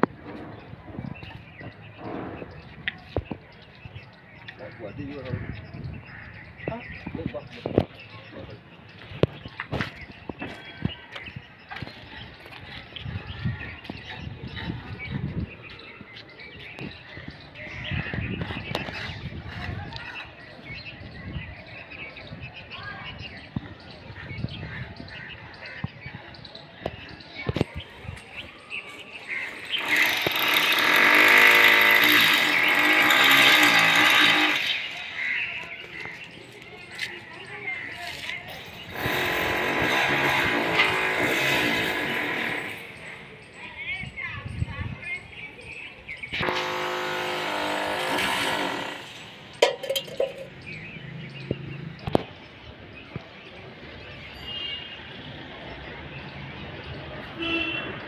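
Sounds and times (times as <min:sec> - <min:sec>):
power tool whining: 0:29.5 - 0:35.4, 0:38.9 - 0:42.8, 0:46.4 - 0:50.4.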